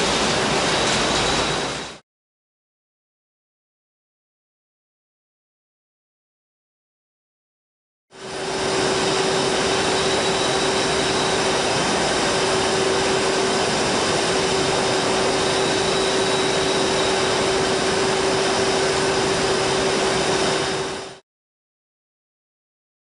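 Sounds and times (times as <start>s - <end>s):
rushing machinery din: 8.2s - 21.2s
steady mid-pitched hum: 8.2s - 21.2s.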